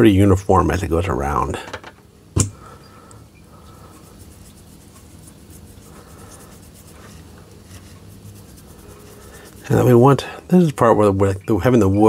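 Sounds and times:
steady low hum: 0.0 - 12.0
scratchy brush strokes: 3.5 - 10.9.

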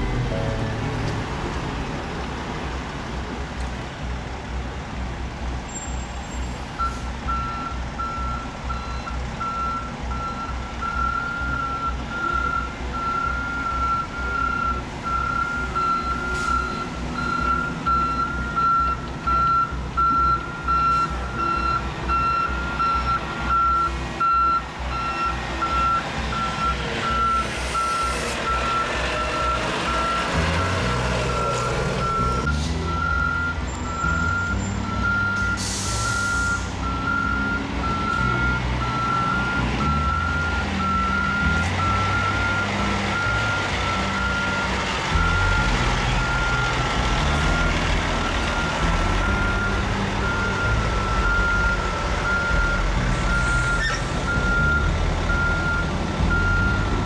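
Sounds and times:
diesel truck engines: 0.0 - 57.0
truck backup alarm beeping: 6.8 - 57.0
air brakes hissing: 35.4 - 36.9.

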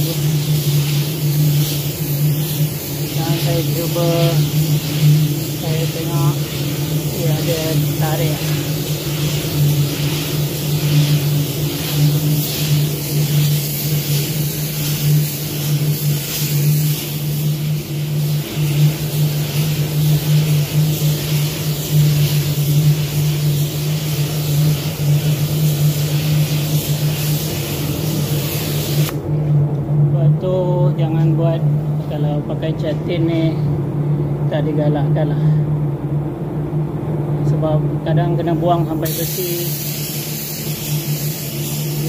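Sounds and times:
compressed air hissing: 0.0 - 29.2, 38.6 - 42.0.

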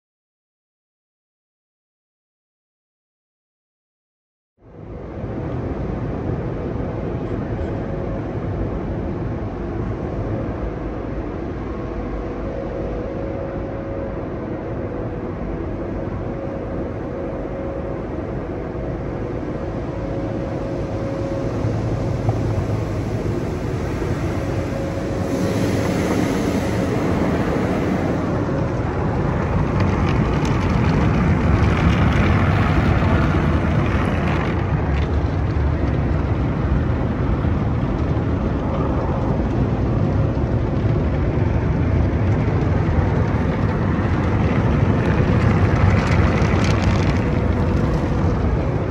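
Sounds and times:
faint steady hum: 4.6 - 48.9
machinery running: 11.5 - 48.9.

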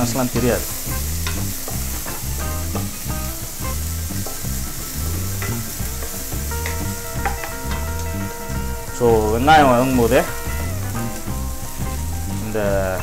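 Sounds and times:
background music with low beat: 0.0 - 13.0
onions sizzling in hot oil: 0.0 - 13.0.

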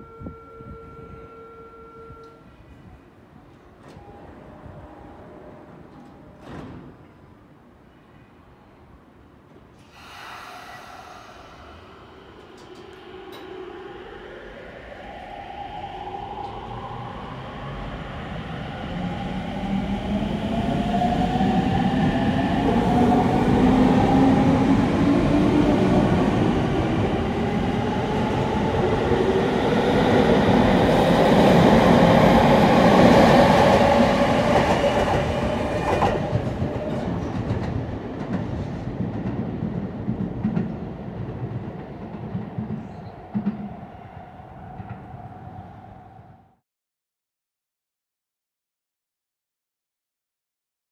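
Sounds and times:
wheels rumbling on rail: 10.6 - 46.0.

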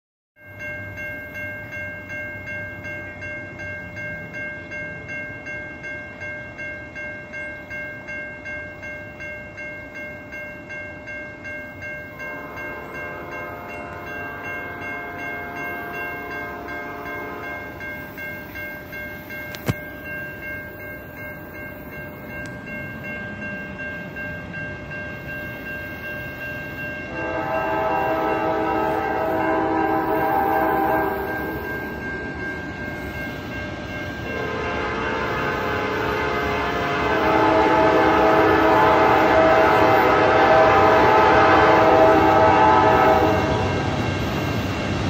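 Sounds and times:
crossing warning bell ringing: 0.4 - 45.0
locomotive air horn: 12.2 - 17.7, 27.1 - 31.6, 34.3 - 44.0.

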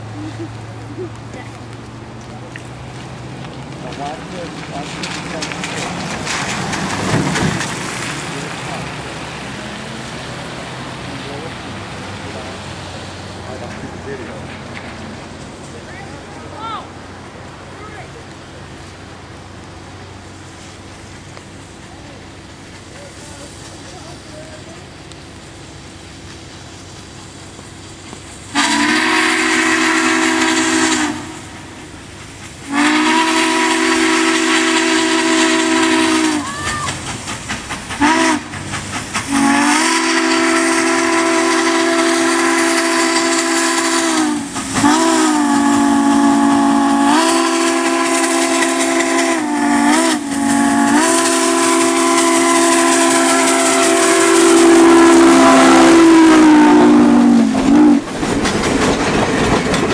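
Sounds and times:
steam locomotive whistle blasts: 28.5 - 31.9, 32.7 - 36.9, 38.0 - 38.6, 39.3 - 58.0.

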